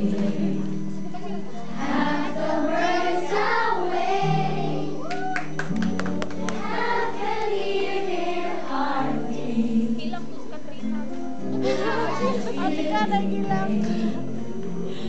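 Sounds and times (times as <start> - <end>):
girls singing together: 0.0 - 5.3, 6.4 - 10.3, 11.6 - 15.0
held accompaniment notes: 0.0 - 15.0.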